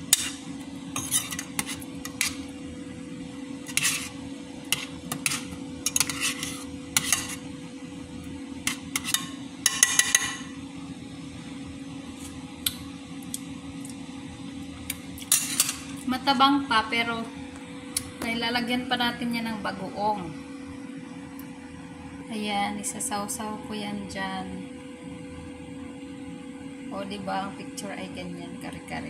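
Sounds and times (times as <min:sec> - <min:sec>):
metal ladle scraping pot: 0:00.0 - 0:02.5, 0:03.6 - 0:07.5, 0:08.7 - 0:10.5, 0:15.3 - 0:15.9.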